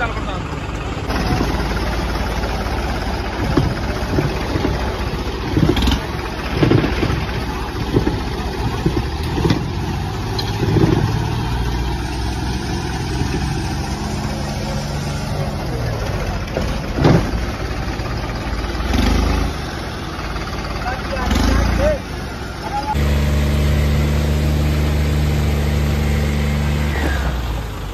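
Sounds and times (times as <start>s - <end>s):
tractor diesel engines under load: 0.0s - 27.9s.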